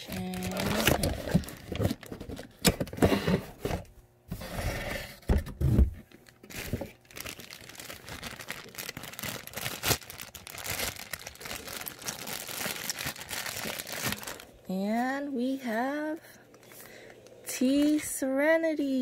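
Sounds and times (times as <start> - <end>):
plastic bag crinkling: 0.0 - 2.6, 6.2 - 15.9.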